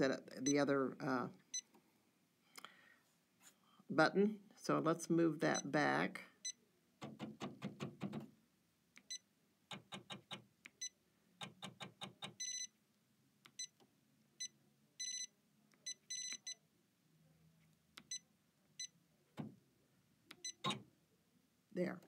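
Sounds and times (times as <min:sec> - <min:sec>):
touchscreen beeping: 0:12.4 - 0:12.7, 0:14.4 - 0:16.6, 0:20.4 - 0:20.8.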